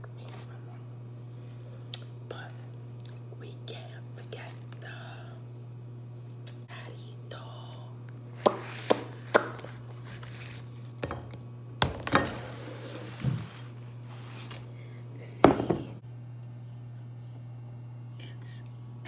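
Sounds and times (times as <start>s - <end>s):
steady low hum: 0.0s - 19.0s
glass and tableware knocking: 15.5s - 15.9s.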